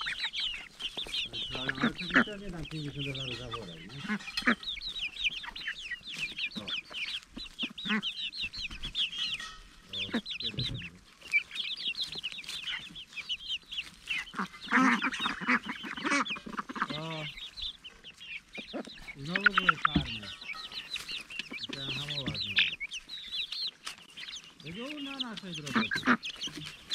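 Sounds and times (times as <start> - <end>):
young hens chirping: 0.0 - 26.9.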